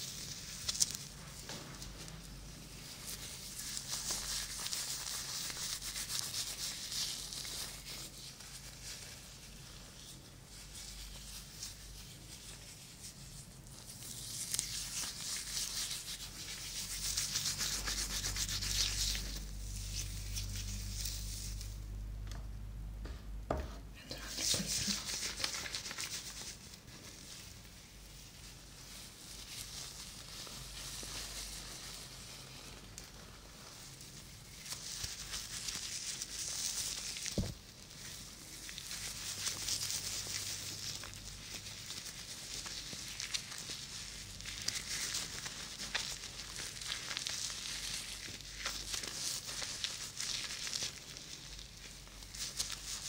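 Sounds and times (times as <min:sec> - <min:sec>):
soft knocks: 0:23.0 - 0:23.9.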